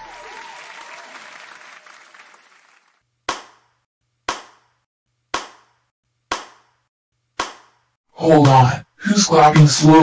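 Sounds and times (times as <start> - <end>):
crowd applause: 0.0 - 3.0.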